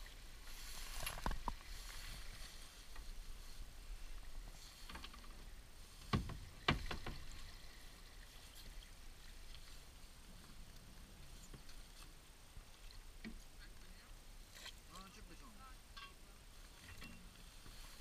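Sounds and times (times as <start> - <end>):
faint hiss of water: 0.0 - 18.0.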